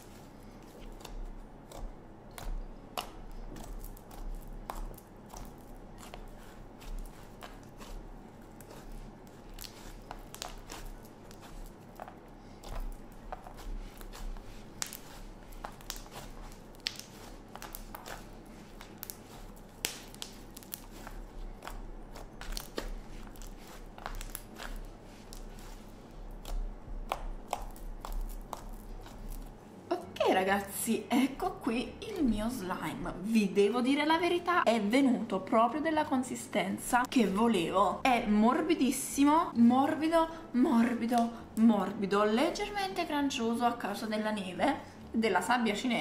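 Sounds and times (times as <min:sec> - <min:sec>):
slime crackling and squishing: 0:00.0 - 0:29.6.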